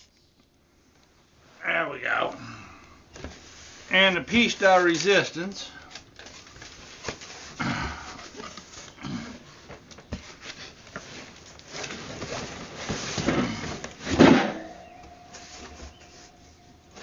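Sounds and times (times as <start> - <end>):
cardboard rustling and scraping: 6.1 - 14.3, 15.2 - 17.0.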